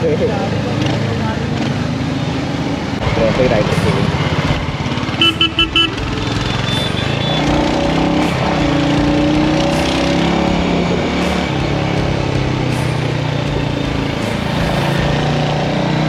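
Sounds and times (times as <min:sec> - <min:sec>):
motorcycle engine running: 0:03.0 - 0:16.0
horn beeps: 0:05.1 - 0:07.9.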